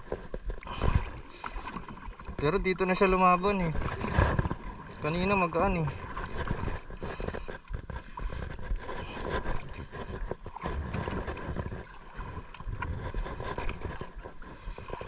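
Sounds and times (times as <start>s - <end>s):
water lapping against kayak hull: 0.0s - 15.0s
wind on microphone: 3.4s - 15.0s.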